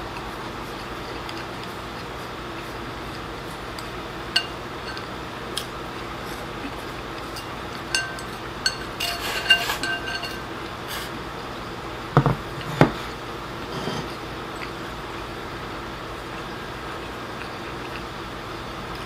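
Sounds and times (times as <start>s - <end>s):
chopsticks clinking on ceramic bowl: 4.4s - 5.7s, 7.2s - 10.5s
bowl ringing tone: 7.4s - 10.5s.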